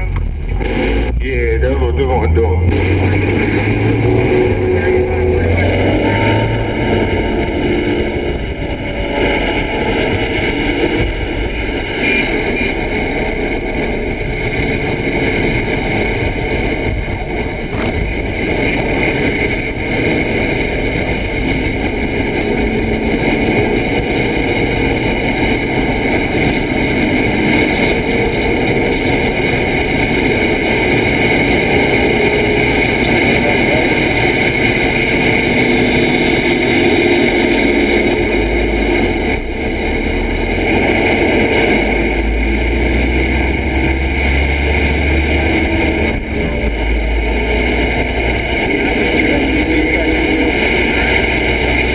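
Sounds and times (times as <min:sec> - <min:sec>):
radio static and hiss: 0:00.0 - 0:51.9
steady whining tones: 0:00.0 - 0:51.9.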